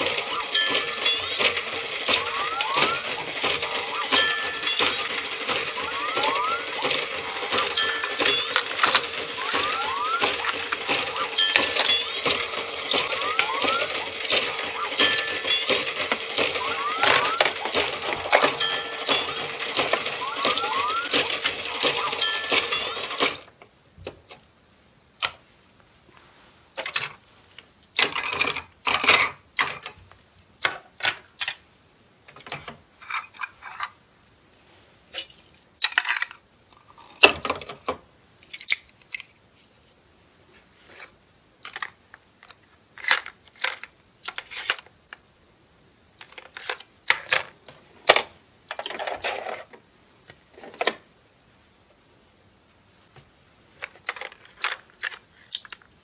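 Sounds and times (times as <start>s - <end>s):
electronic toy sound: 0.0s - 23.5s
plastic toy pieces clattering: 35.2s - 37.8s, 41.6s - 44.9s, 46.2s - 49.7s, 53.8s - 55.9s.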